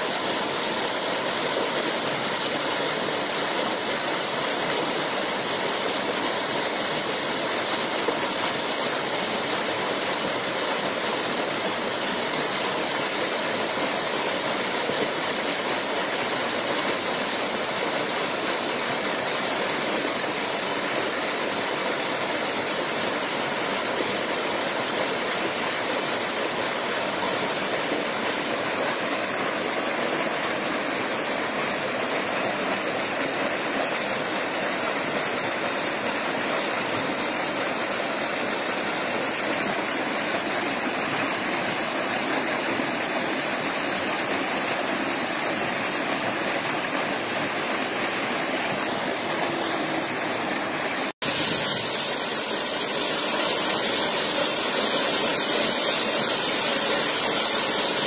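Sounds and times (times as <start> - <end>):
water rushing over rocks: 0.0 - 58.0.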